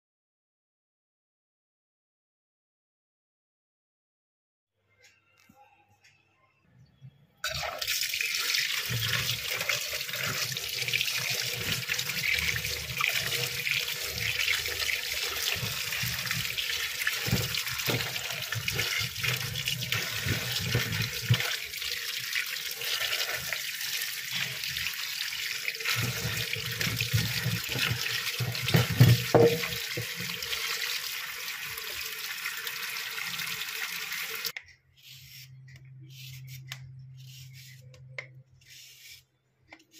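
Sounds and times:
tap water running: 0:07.5 - 0:34.5.

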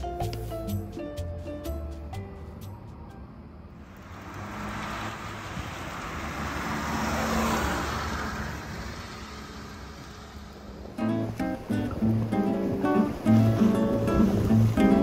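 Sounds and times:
acoustic guitar music: 0:00.0 - 0:02.8, 0:10.8 - 0:15.0
low steady traffic hum: 0:00.0 - 0:15.0
car passing: 0:02.0 - 0:15.0.

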